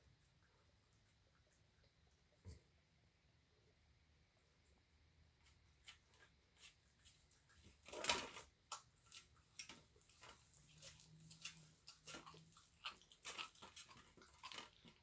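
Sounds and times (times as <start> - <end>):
teeth crunching on bone: 7.9 - 15.0.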